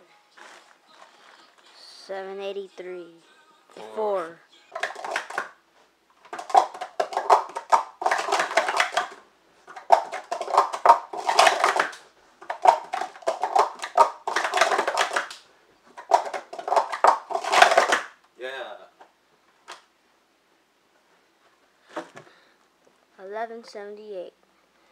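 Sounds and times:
plastic cups clattering: 4.8 - 5.6, 6.2 - 18.2.

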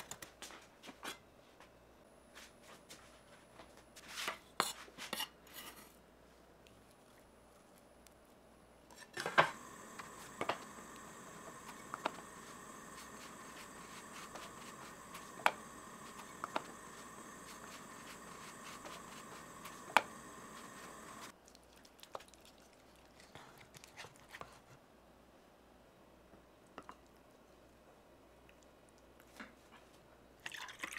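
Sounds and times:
gas burner hissing: 9.2 - 21.3
wooden spoon scraping in sauce: 9.2 - 21.3.

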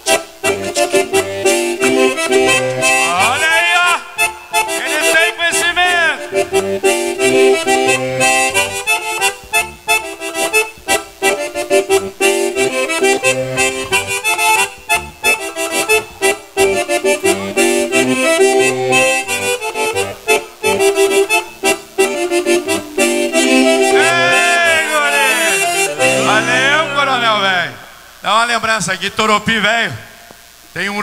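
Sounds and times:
accordion dance tune: 0.0 - 28.2.

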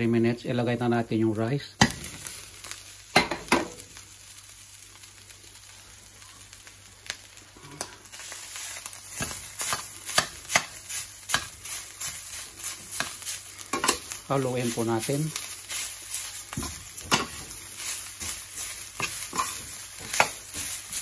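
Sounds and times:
rice sizzling in a frying pan: 0.0 - 21.0
utensil scraping a pan: 9.1 - 21.0.

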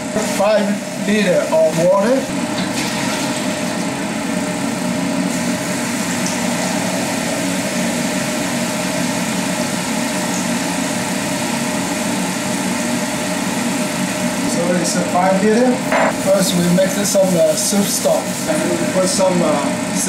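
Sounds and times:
steady motor drone: 3.6 - 17.0.

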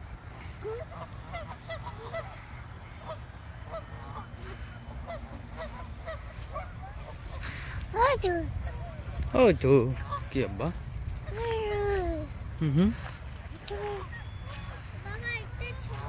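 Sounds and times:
geese honking: 0.0 - 7.8, 9.9 - 10.6, 13.0 - 16.0.

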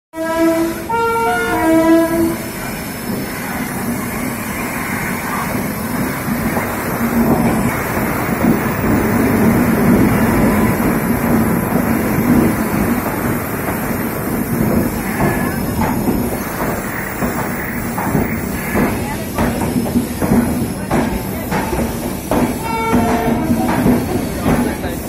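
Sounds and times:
train horn blasts: 0.2 - 2.6, 22.6 - 23.7
train wheels rumbling on rails: 0.2 - 25.0.

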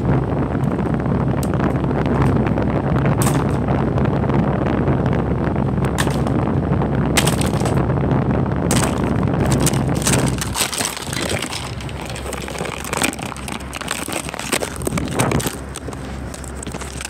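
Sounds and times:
heavy low rumble: 0.0 - 17.0
plastic toys clattering: 7.2 - 7.8, 8.7 - 17.0.

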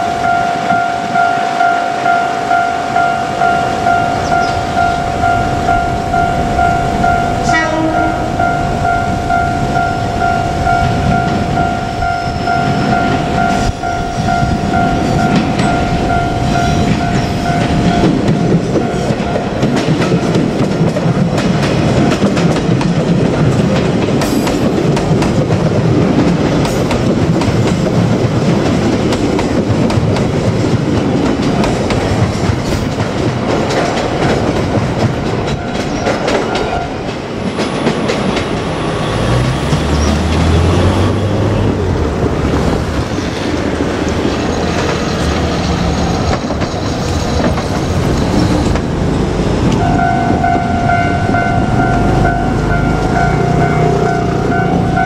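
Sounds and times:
steady ringing tone: 0.0 - 20.6, 49.8 - 55.0
train wheels clattering: 2.9 - 55.0.

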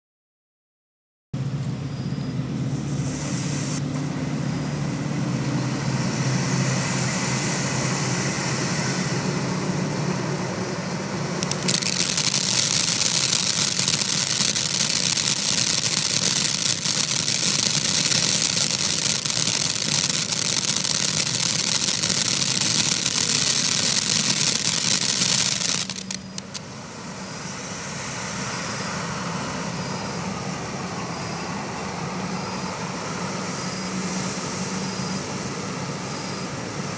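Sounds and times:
firework fountain hissing: 2.8 - 3.9, 11.4 - 26.7.

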